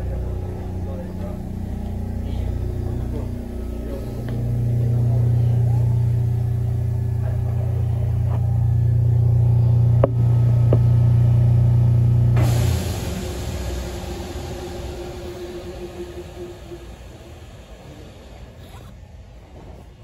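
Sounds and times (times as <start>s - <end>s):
electric train hum: 0.0s - 20.0s
bright hiss: 12.4s - 18.8s.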